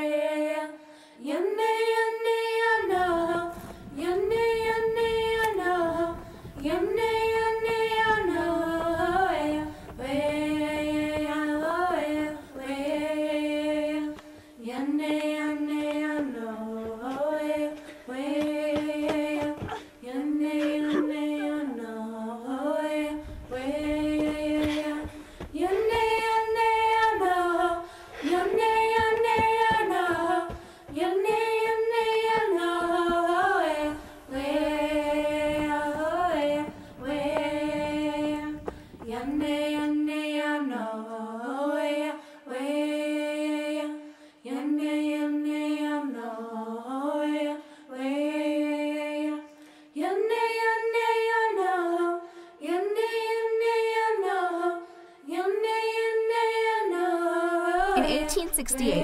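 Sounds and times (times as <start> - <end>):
woman singing unaccompanied: 0.0 - 43.9, 55.3 - 59.0
woman breathing: 0.8 - 1.2, 24.6 - 25.6, 27.8 - 28.6, 30.6 - 30.9.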